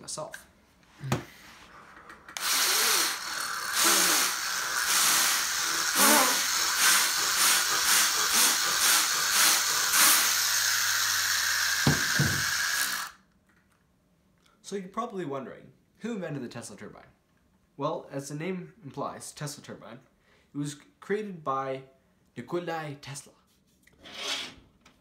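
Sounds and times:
air rushing hiss through turbine: 2.5s - 12.7s.

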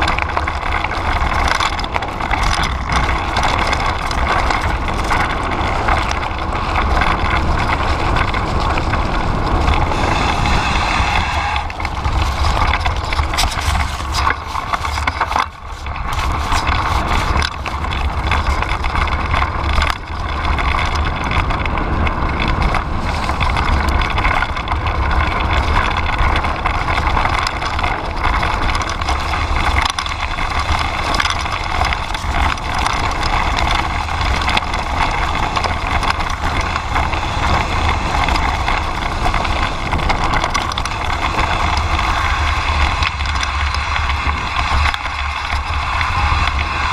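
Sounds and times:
bike tyres and frame rattling: 0.0s - 46.9s
wind buffeting microphone: 0.0s - 46.9s.

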